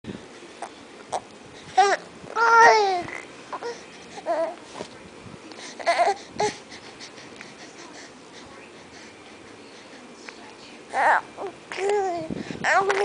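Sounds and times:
baby fussing and crying: 0:01.8 - 0:04.6, 0:05.7 - 0:08.1.

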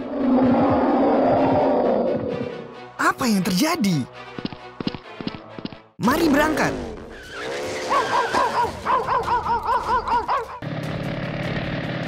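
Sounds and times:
animal yelping: 0:07.2 - 0:10.6
vehicle engine hum: 0:09.8 - 0:12.0.

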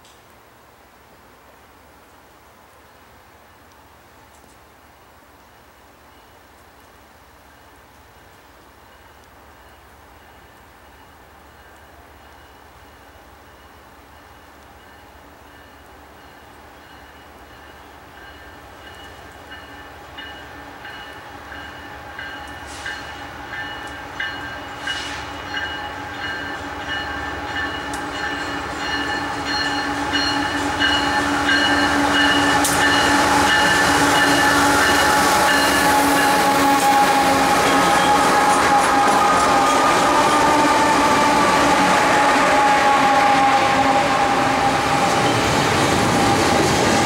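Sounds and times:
freight train passing: 0:04.9 - 0:47.0.

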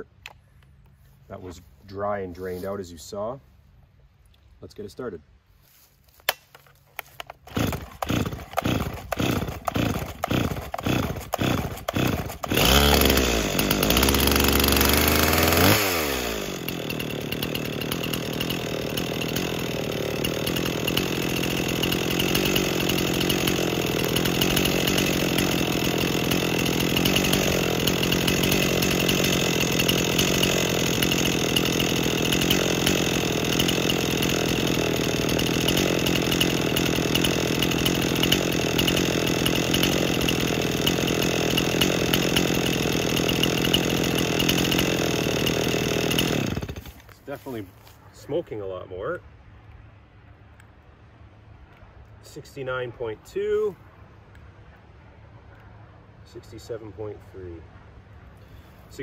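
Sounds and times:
chainsaw cord pulls: 0:06.3 - 0:47.9
chainsaw engine running: 0:07.0 - 0:48.6.

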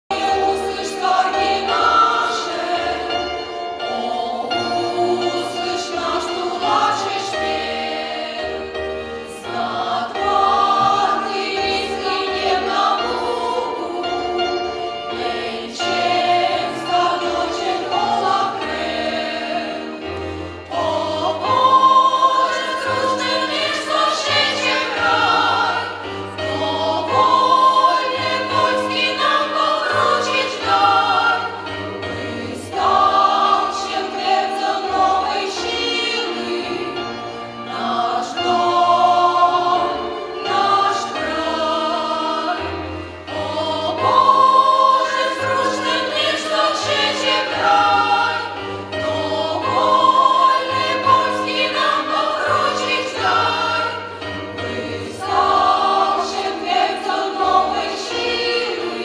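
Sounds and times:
choir singing in several voices: 0:00.1 - 0:59.0.

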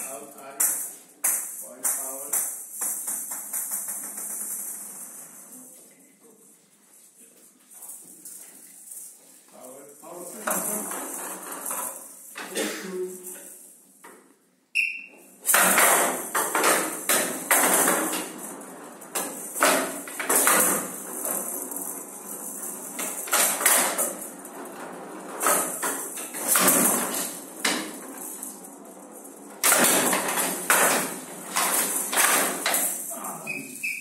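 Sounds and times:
ball rattling across wooden table: 0:00.6 - 0:05.6, 0:10.3 - 0:12.5, 0:15.4 - 0:33.1.

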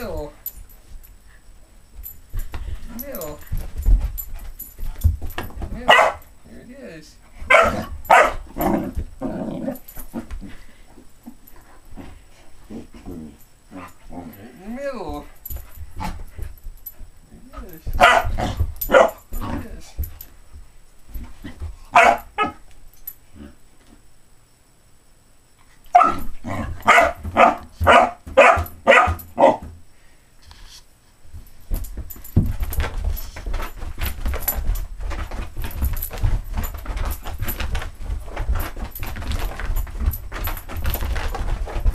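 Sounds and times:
dog barking: 0:05.9 - 0:06.2, 0:07.5 - 0:08.4, 0:18.0 - 0:18.3, 0:21.9 - 0:22.6, 0:25.9 - 0:29.6
scuffling and rubbing noise: 0:30.4 - 0:41.9.

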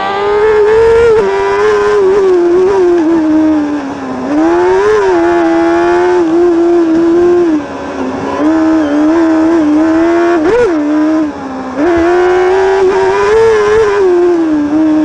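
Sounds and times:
kart engine revving: 0:00.0 - 0:15.0.

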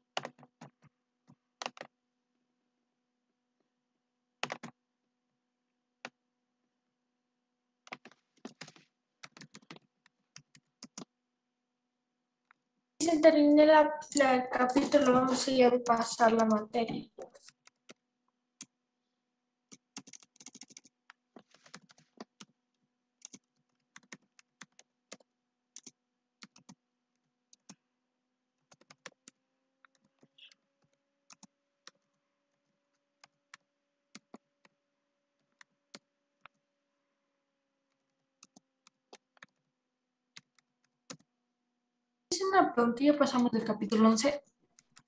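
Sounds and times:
keyboard typing clicks: 0:01.6 - 0:01.9, 0:04.4 - 0:04.8, 0:07.8 - 0:11.1, 0:14.0 - 0:18.0, 0:19.7 - 0:22.5, 0:23.2 - 0:26.8, 0:28.7 - 0:32.1, 0:40.4 - 0:41.3.

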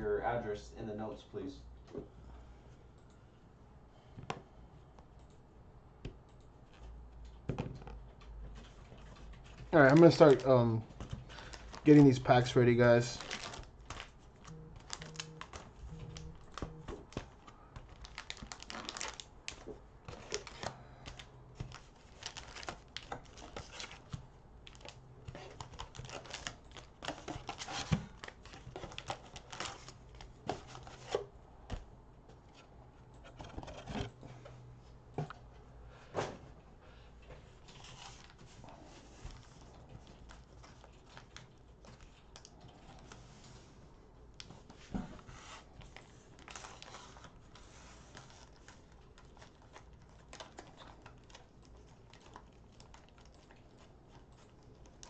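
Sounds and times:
plastic wrapper crinkling: 0:09.7 - 0:30.9, 0:45.8 - 0:55.0.

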